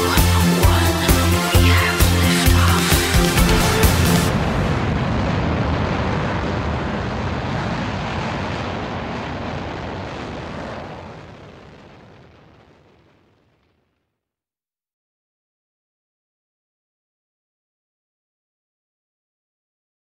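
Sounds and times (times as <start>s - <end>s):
rumbling sustained music note: 0.7s - 5.7s.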